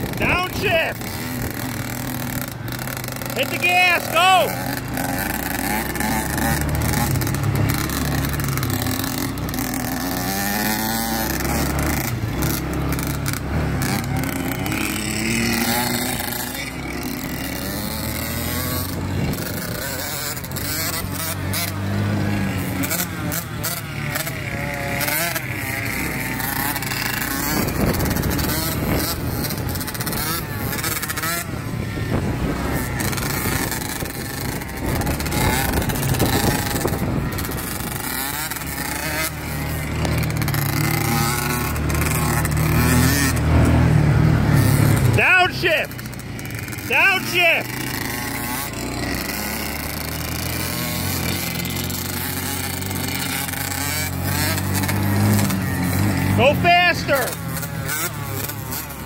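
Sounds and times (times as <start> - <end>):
dirt bike engines revving: 0.0 - 59.0
rushes of noise: 0.0 - 59.0.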